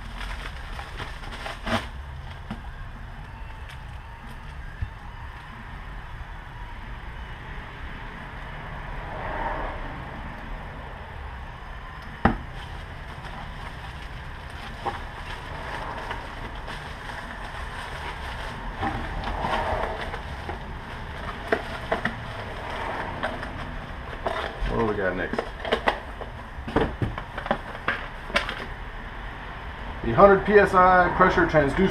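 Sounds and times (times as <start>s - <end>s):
plastic packaging crinkling: 0.0s - 4.6s, 12.3s - 26.4s.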